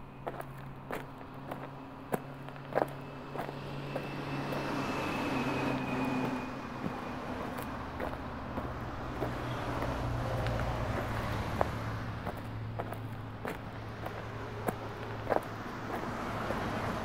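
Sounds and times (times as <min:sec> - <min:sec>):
vehicle passing: 0:00.2 - 0:17.0
footsteps on wet pavement: 0:06.0 - 0:17.0.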